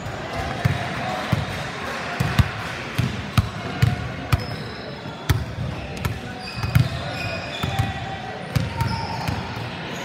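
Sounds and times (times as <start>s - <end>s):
basketballs bouncing on wooden floor: 2.2s - 4.6s, 5.3s - 9.6s.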